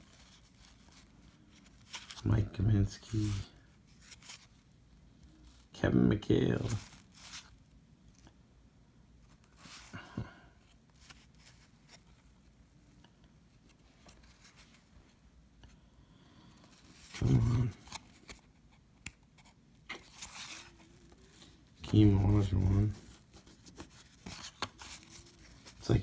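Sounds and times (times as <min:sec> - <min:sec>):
cardboard cards rustling: 0:00.0 - 0:05.7, 0:06.3 - 0:07.6, 0:10.6 - 0:12.6, 0:16.5 - 0:26.0.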